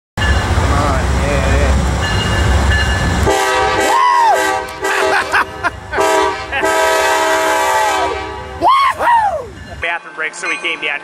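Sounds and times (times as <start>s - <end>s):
locomotive air horn chord: 3.2s - 5.3s, 5.9s - 8.6s.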